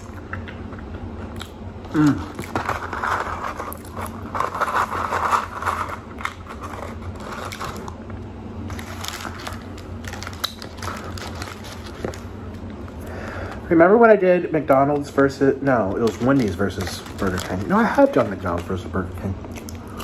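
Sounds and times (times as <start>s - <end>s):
paper carton crinkling: 2.3s - 8.0s, 8.6s - 12.3s, 15.9s - 19.0s.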